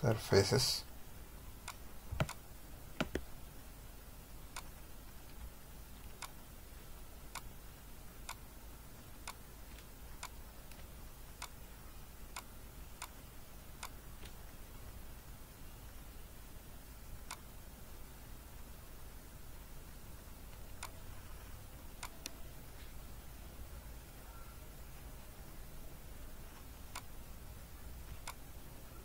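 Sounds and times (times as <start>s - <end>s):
steady low hum: 0.0s - 29.0s
computer mouse clicking: 1.7s - 2.4s, 3.0s - 3.3s, 26.6s - 27.1s.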